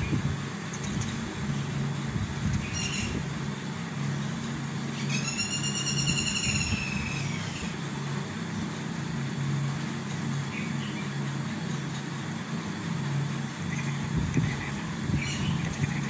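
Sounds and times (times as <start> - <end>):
low mechanical hum: 0.0 - 16.0
long high-pitched call: 5.0 - 7.7.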